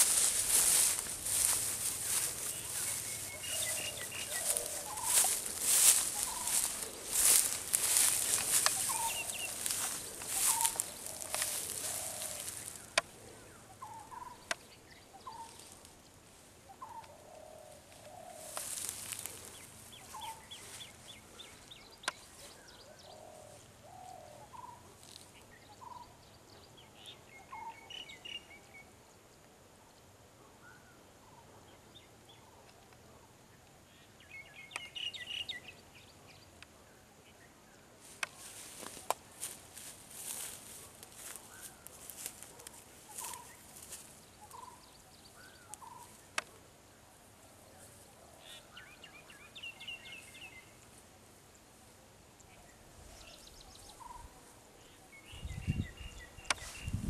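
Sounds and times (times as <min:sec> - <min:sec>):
footsteps through tall grass: 0:00.0 - 0:13.1, 0:15.2 - 0:17.0, 0:17.7 - 0:22.7, 0:38.0 - 0:46.5, 0:55.8 - 0:57.0
birds calling: 0:00.0 - 0:28.6, 0:37.3 - 0:57.0
bird trills: 0:00.1 - 0:12.9.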